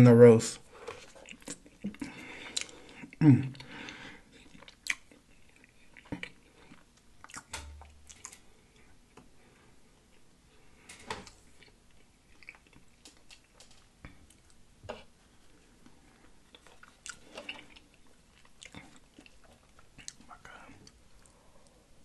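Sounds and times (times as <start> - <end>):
mouth chewing food: 0.8 - 9.2, 11.5 - 21.7
wet smacks and clicks: 7.0 - 8.4.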